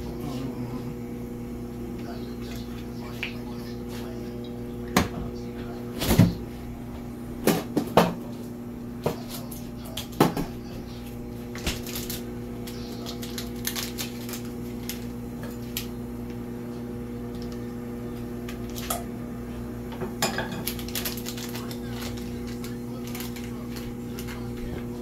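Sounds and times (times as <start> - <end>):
electrical hum: 0.0 - 25.0
wrapper crinkling: 11.6 - 15.9, 20.6 - 24.6.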